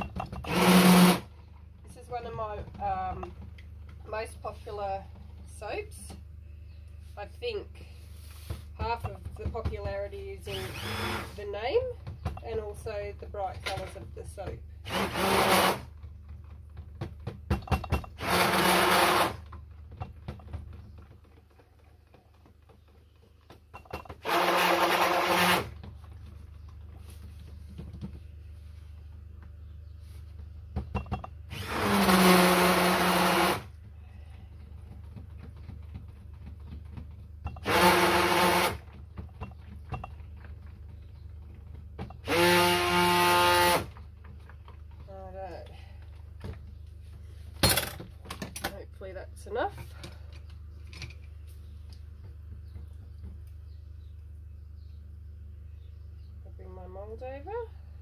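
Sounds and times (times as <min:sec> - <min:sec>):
stick blender pulsing: 0:00.0 - 0:01.3, 0:17.9 - 0:19.5.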